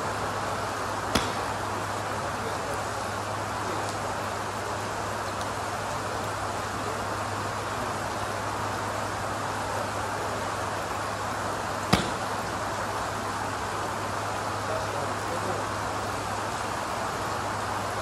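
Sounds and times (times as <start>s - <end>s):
rain hissing: 0.0s - 18.0s
golf club striking ball: 1.1s - 1.7s, 11.9s - 12.4s.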